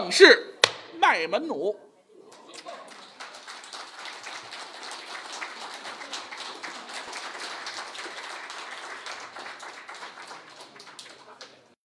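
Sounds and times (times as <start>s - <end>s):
audience applauding: 2.3s - 11.7s.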